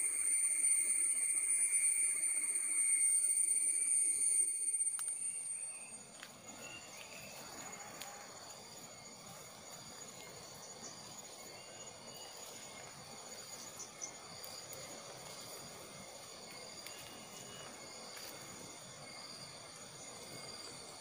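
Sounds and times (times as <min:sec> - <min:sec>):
insects chirring: 0:00.0 - 0:21.0
leaves rustling: 0:05.9 - 0:19.2
footsteps on dirt path: 0:06.1 - 0:08.2, 0:12.0 - 0:18.9.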